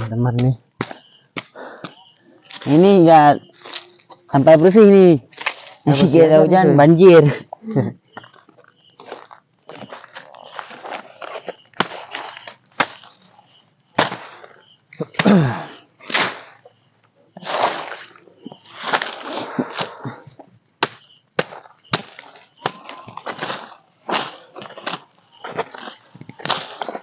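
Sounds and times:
machete chopping wood: 0.3s - 2.8s, 11.8s - 13.1s, 14.0s - 15.5s, 16.1s - 16.5s, 20.8s - 27.0s
rustling: 8.4s - 13.4s.

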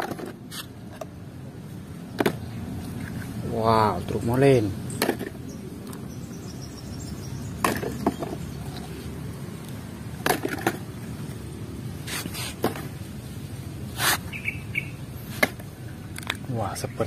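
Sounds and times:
plastic toys knocking on cement: 0.0s - 0.4s, 2.1s - 2.5s, 4.9s - 5.4s, 7.6s - 8.9s, 10.2s - 11.0s, 12.6s - 13.0s.

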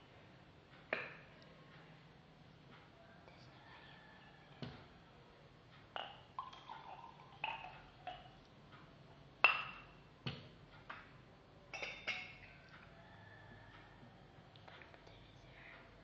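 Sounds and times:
drink containers knocking and clinking: 5.9s - 8.4s, 9.4s - 11.1s, 11.7s - 12.6s.

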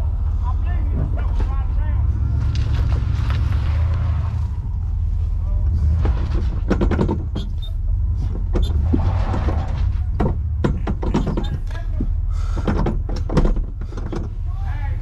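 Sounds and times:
car cabin low rumble: 0.0s - 15.0s
car body clunks and rattles: 0.8s - 1.8s, 5.7s - 14.5s.

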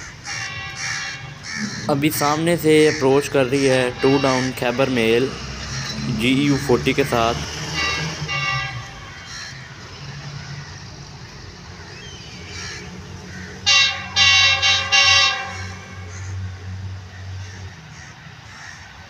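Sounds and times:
locomotive horn blasts: 0.3s - 10.1s, 12.9s - 16.8s.

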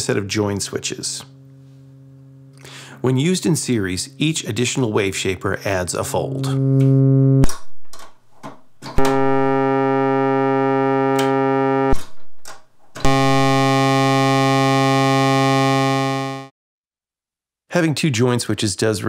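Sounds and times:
synthesizer drone: 9.0s - 12.0s, 13.0s - 16.5s.

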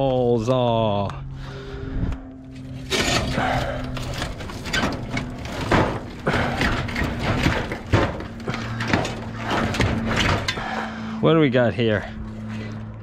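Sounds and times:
sheet metal clanking and scraping: 2.6s - 11.0s
sharp knocks: 4.7s - 10.8s.

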